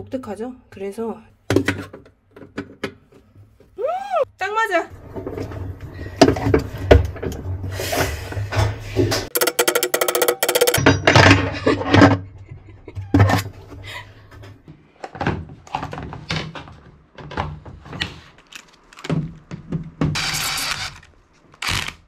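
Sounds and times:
metal bits clicking in plastic case: 9.3s - 10.8s.

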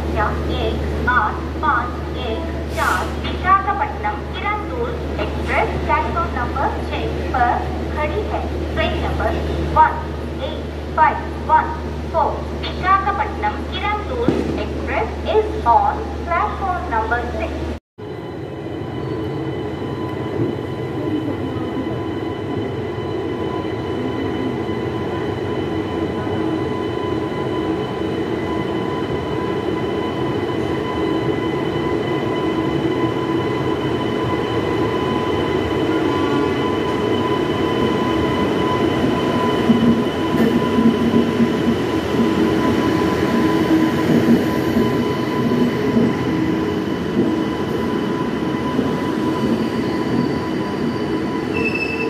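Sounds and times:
locomotive high whine: 0.0s - 52.0s
train wheels rumbling on track: 18.6s - 52.0s.

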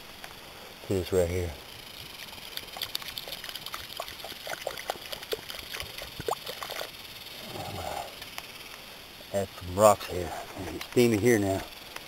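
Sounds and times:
water pouring with plops: 2.2s - 6.9s.

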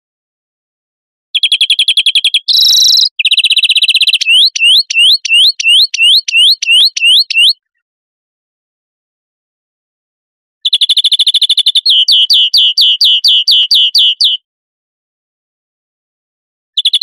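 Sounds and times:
bird trilling: 1.4s - 7.6s, 10.6s - 14.4s
rising whistled bird notes: 1.4s - 7.6s, 10.7s - 14.4s.

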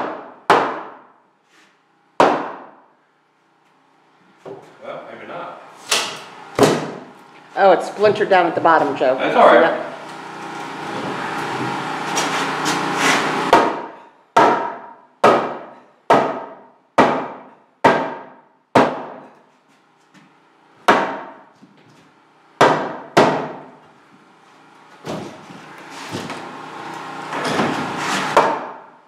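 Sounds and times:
hammer striking wooden stud: 0.0s - 1.1s, 2.2s - 2.8s, 6.6s - 7.0s, 13.5s - 19.3s, 20.8s - 21.4s, 22.6s - 23.8s, 27.4s - 28.9s.

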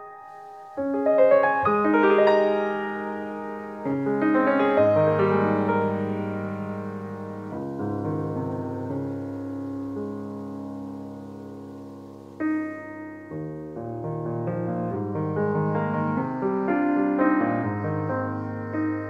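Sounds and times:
piano music: 0.0s - 19.0s.

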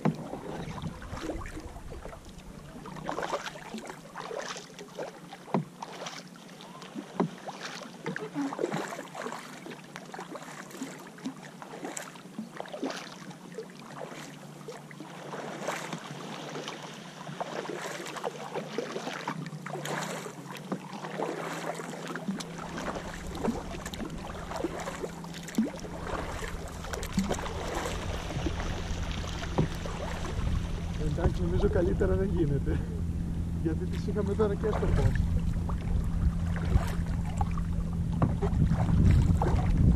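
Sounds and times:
low rumble: 0.0s - 3.9s, 22.4s - 39.9s
paddles splashing in water: 0.0s - 39.9s.

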